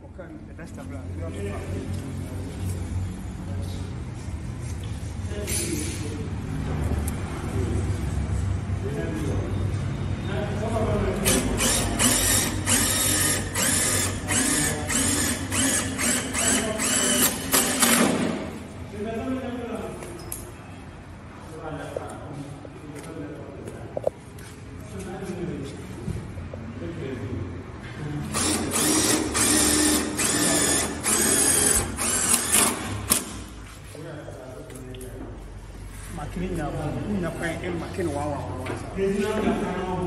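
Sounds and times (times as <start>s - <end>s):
cordless drill whirring in spurts: 11.3s - 18.2s, 28.3s - 33.0s.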